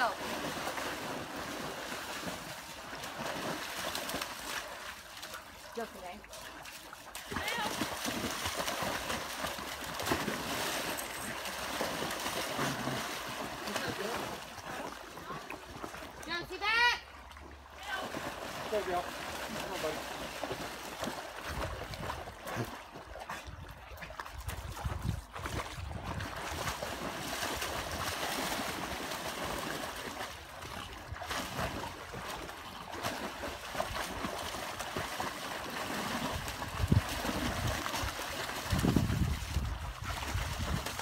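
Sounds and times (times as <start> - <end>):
dogs splashing in water: 0.0 - 41.0
river water rushing: 7.2 - 15.5.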